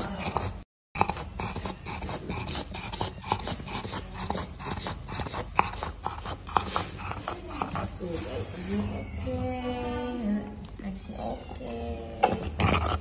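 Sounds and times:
dog breathing noisily: 0:00.0 - 0:08.6
dog snorting and snuffling: 0:00.0 - 0:09.0, 0:12.2 - 0:13.0.

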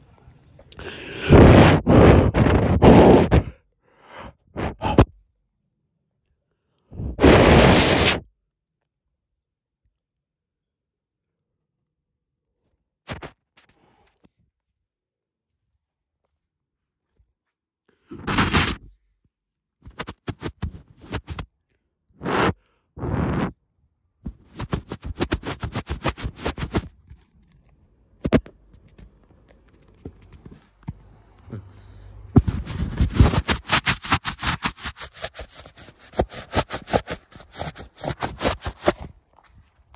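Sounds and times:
finger rubbing and tapping on phone: 0:01.3 - 0:03.5, 0:04.6 - 0:05.1, 0:07.0 - 0:08.2, 0:18.1 - 0:18.9, 0:19.8 - 0:21.5, 0:22.2 - 0:23.6, 0:24.2 - 0:27.0, 0:28.2 - 0:31.2, 0:32.4 - 0:39.1
short noise bursts: 0:07.0 - 0:08.2, 0:32.4 - 0:39.0.

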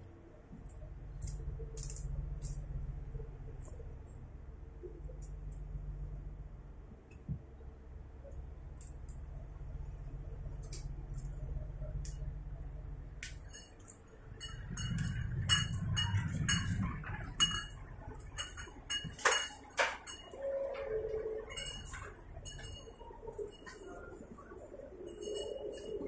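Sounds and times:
low train hum: 0:00.0 - 0:26.0
light clinks and clicks: 0:00.6 - 0:02.7, 0:10.0 - 0:26.0.

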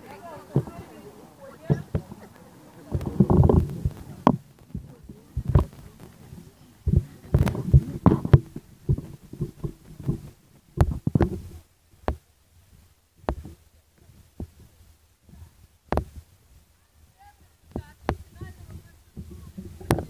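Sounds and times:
wind buffeting microphone: 0:00.0 - 0:11.6, 0:17.2 - 0:20.0
phone handling thumps: 0:02.9 - 0:06.1.

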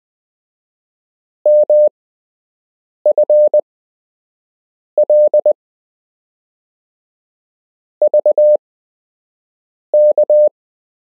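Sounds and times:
morse code beeps: 0:01.5 - 0:01.9, 0:03.1 - 0:03.6, 0:05.0 - 0:05.6, 0:08.0 - 0:08.6, 0:10.0 - 0:10.5.

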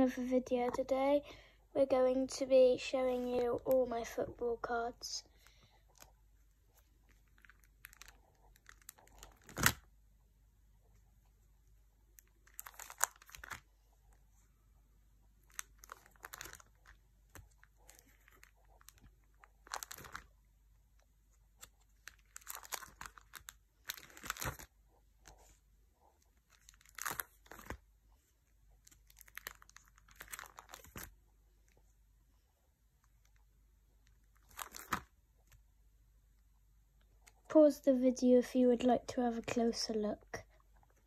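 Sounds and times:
plastic pages crinkling: 0:02.9 - 0:09.9, 0:12.2 - 0:14.4, 0:15.4 - 0:20.4, 0:21.5 - 0:31.9, 0:34.0 - 0:35.6.

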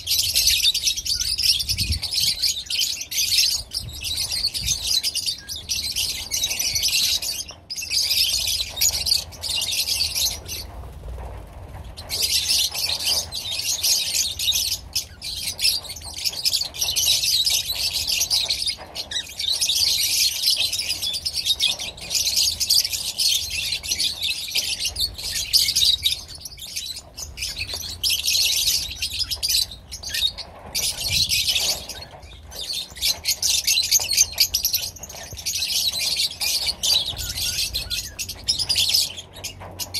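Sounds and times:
flock of birds chattering shrieking: 0:12.0 - 0:39.9.

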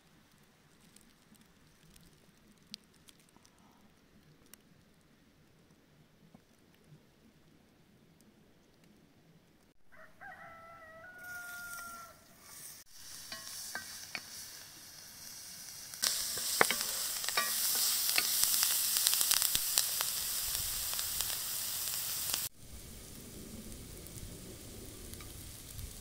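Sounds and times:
rooster crowing: 0:09.9 - 0:12.3
onion sizzling in a wok: 0:10.3 - 0:26.0
wooden spatula scraping: 0:11.4 - 0:14.5, 0:16.0 - 0:19.5.

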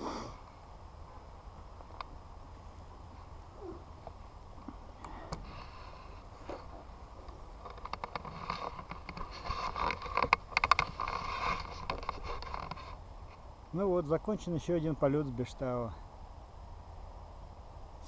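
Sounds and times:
camera handling rustling and clicking: 0:07.3 - 0:13.0.

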